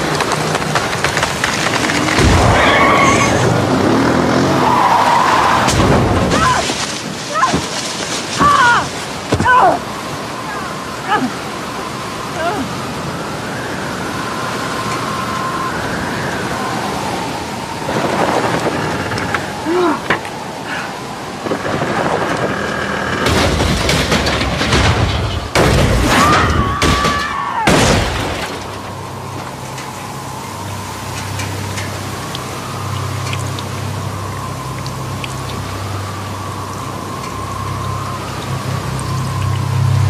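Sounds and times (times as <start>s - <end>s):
quad bike engine rumbling: 1.6s - 5.1s
faint light ticks: 31.1s - 33.8s.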